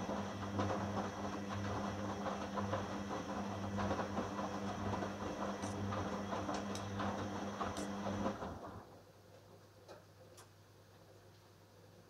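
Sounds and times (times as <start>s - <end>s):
washing machine motor hum: 0.0s - 9.2s.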